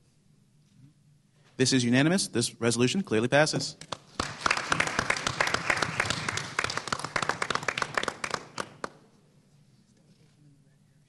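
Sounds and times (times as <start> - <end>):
people applauding: 3.8 - 9.1.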